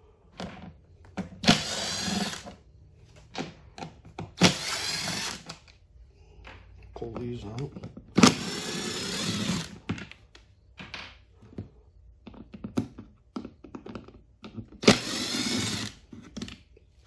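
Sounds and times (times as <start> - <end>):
cordless drill motor whine: 1.4 - 2.5, 4.4 - 5.5, 8.2 - 9.7, 14.8 - 16.0.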